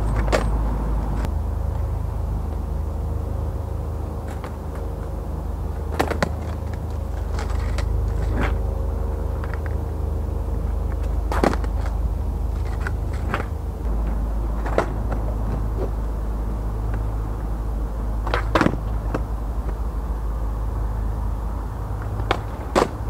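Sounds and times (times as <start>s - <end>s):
skateboard clacking on asphalt: 0.0s - 0.7s, 5.8s - 8.6s, 10.8s - 16.0s, 18.2s - 19.9s, 22.0s - 23.0s
low rumble: 0.0s - 23.0s.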